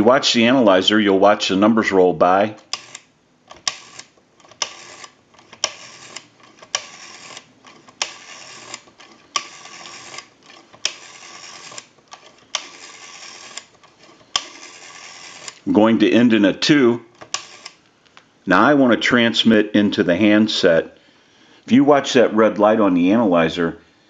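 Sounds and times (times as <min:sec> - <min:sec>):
rotary telephone dial click: 0:02.6 - 0:15.6, 0:17.1 - 0:17.8
rotary dial whirring return: 0:02.6 - 0:15.8, 0:17.1 - 0:17.9.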